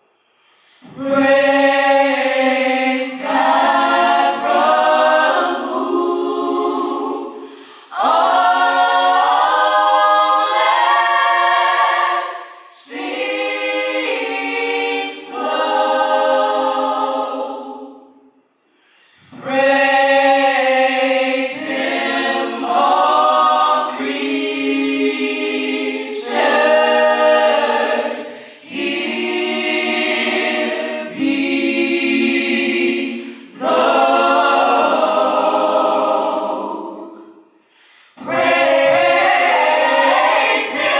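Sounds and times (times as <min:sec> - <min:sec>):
singers breathing: 0:00.0 - 0:01.0, 0:07.3 - 0:08.0, 0:12.3 - 0:12.8, 0:18.6 - 0:19.4, 0:28.2 - 0:28.7, 0:33.1 - 0:33.6, 0:37.4 - 0:38.2
choir singing a cappella: 0:00.0 - 0:40.9.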